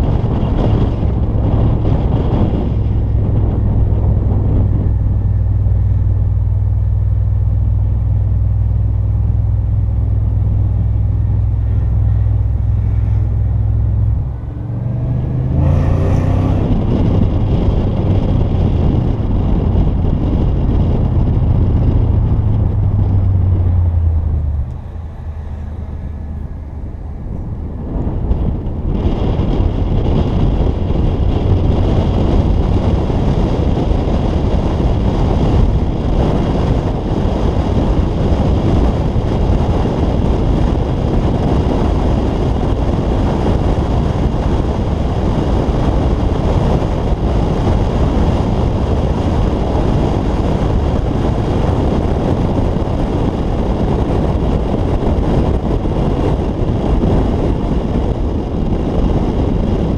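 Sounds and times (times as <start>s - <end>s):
tyre and road noise: 0.0s - 59.9s
wind buffeting microphone: 0.0s - 59.9s.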